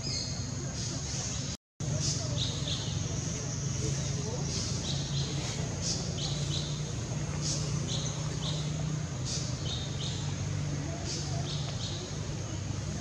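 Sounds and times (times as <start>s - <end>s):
bird chirping: 0.0s - 10.4s
steady low hum: 0.0s - 13.0s.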